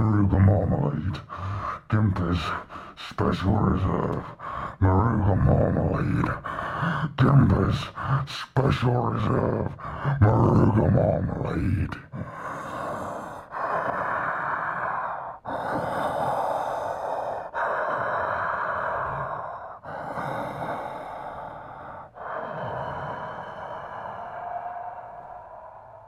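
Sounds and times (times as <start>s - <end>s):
man breathing heavily: 1.2s - 1.9s, 4.2s - 4.8s, 6.4s - 7.2s, 9.8s - 10.2s, 12.1s - 26.0s.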